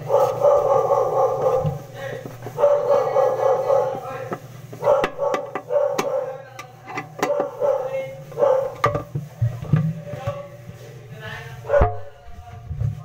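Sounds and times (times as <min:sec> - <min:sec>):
dog barking: 0:00.0 - 0:01.9, 0:02.5 - 0:04.2, 0:04.8 - 0:06.5, 0:07.2 - 0:08.9, 0:11.7 - 0:12.1.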